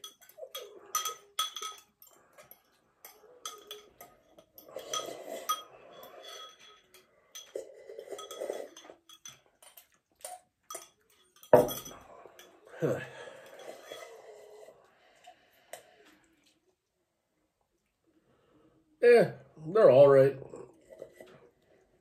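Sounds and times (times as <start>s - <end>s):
forks clinking on ceramic mugs: 0.0s - 14.7s
slurping noodles and broth: 13.2s - 16.4s.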